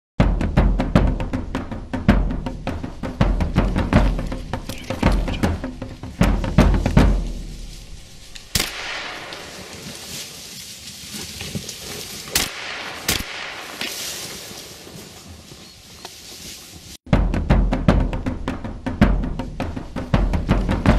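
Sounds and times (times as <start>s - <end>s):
heavy drum beats music: 0.2s - 9.3s, 17.1s - 20.9s
gunshots: 8.4s - 9.7s, 12.3s - 14.4s.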